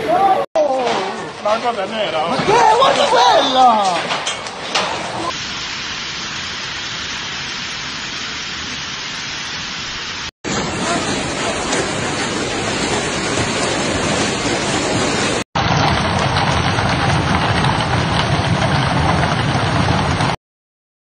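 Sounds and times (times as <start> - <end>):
hail and heavy rain falling: 0.8 - 20.4
hailstones pelting hard ground: 10.5 - 20.4.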